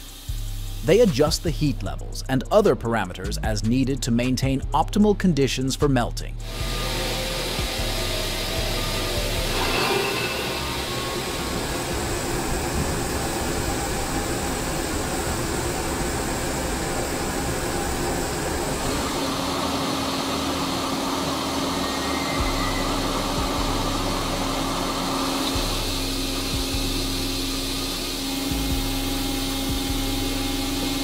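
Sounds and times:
industrial rushing hiss: 0.0 - 1.8, 6.4 - 31.0
machine hum with low drone: 6.4 - 31.0.

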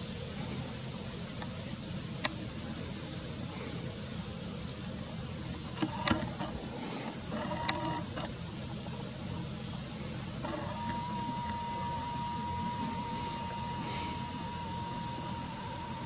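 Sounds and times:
crickets chirring: 0.0 - 16.0
camera zoom motor whirring: 5.7 - 8.4, 10.3 - 16.0.

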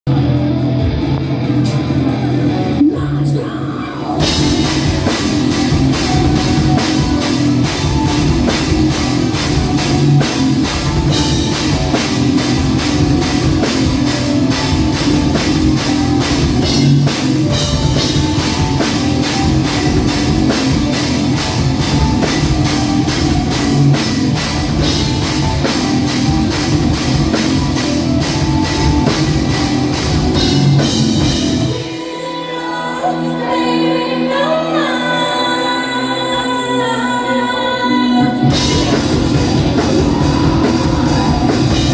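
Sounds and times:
heavy metal band playing live: 0.1 - 33.5, 38.2 - 41.9
dense drumming: 4.2 - 31.8, 38.5 - 41.9.

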